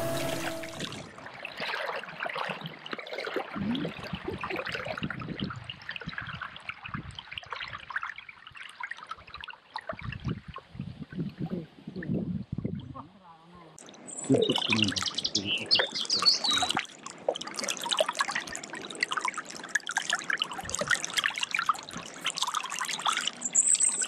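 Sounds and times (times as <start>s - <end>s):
paddle splashing in water: 0.0s - 5.2s, 16.1s - 23.4s
water trickling and dripping: 0.1s - 11.4s, 13.8s - 24.0s.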